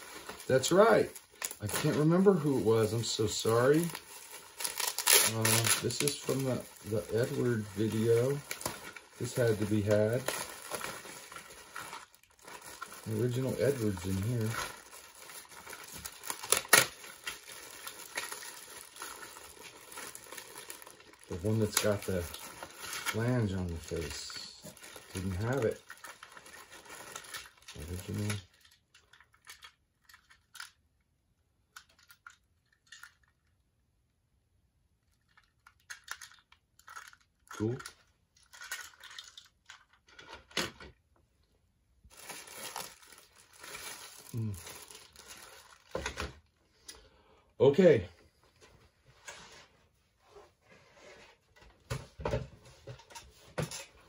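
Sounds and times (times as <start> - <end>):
plastic toy clicks and crinkles: 4.0 - 31.0, 31.7 - 33.6, 35.0 - 40.9.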